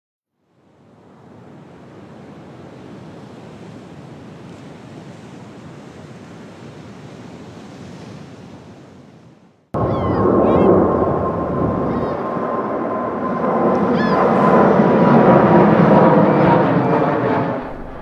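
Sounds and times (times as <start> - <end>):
steady rushing noise: 9.8 - 18.0.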